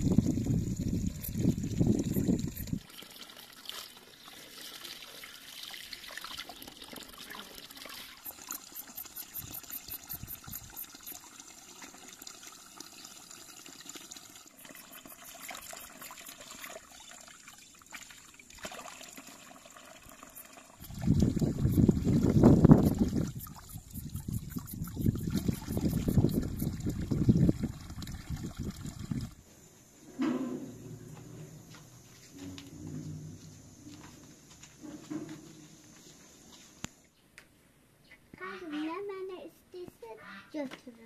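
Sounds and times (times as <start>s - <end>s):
water trickling into stone trough: 0.0s - 29.4s.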